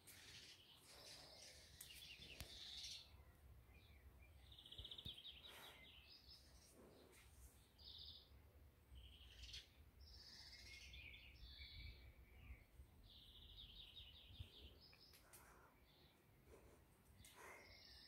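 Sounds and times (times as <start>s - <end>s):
birds chirping and trilling: 0.0s - 16.3s, 17.2s - 18.0s
faint clicks: 14.9s - 15.6s.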